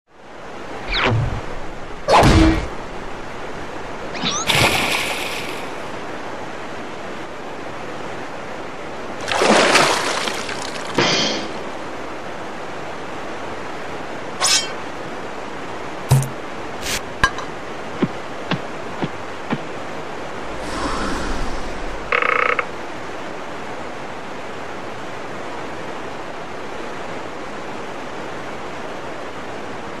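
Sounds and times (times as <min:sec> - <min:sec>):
river water rushing: 0:00.2 - 0:30.0
whoosh with low rumble: 0:00.8 - 0:06.1, 0:20.3 - 0:22.2
rushing waterfall hiss: 0:02.7 - 0:06.7, 0:09.2 - 0:12.0, 0:19.2 - 0:22.2
loud splash: 0:04.2 - 0:06.0, 0:09.2 - 0:11.6.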